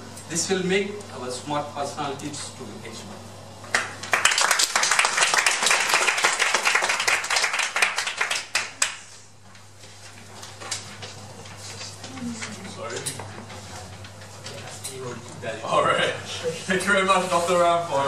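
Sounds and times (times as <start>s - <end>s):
small audience clapping: 3.6s - 9.3s.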